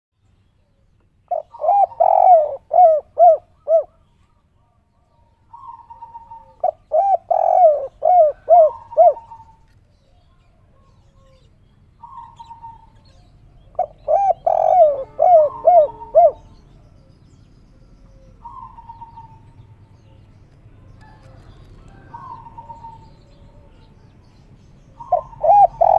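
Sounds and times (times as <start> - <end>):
dove cooing: 1.3 - 4.0, 5.5 - 9.6, 12.0 - 16.6, 18.2 - 19.6, 21.0 - 23.9, 25.0 - 25.9.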